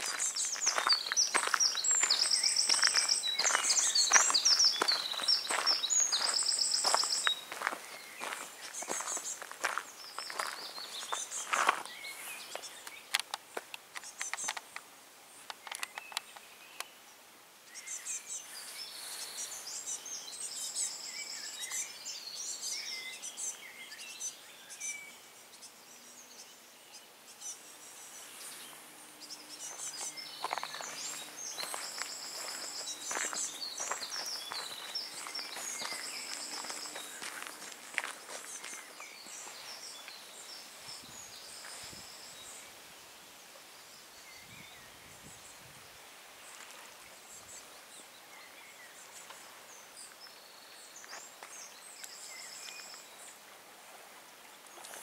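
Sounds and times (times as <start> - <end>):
footsteps: 0.0 - 12.7, 29.7 - 40.2
songbirds chirping: 0.0 - 55.0.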